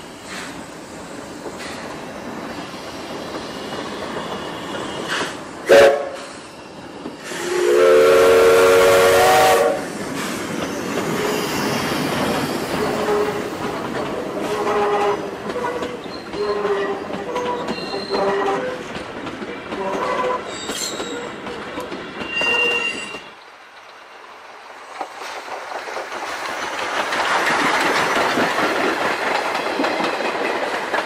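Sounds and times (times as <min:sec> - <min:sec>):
steam locomotive whistle: 0:05.0 - 0:06.5, 0:07.2 - 0:09.9, 0:14.4 - 0:18.8, 0:19.8 - 0:21.4, 0:22.2 - 0:23.3
wheels clicking over rail joints: 0:09.9 - 0:31.0
short thin squeals: 0:22.2 - 0:23.4.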